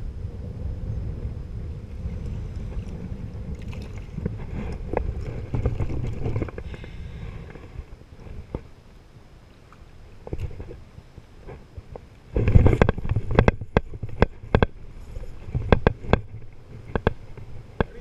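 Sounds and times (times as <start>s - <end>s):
wind rumbling on microphone: 0.0s - 18.0s
water lapping against kayak: 1.0s - 18.0s
light knocks and splashes: 2.7s - 6.7s.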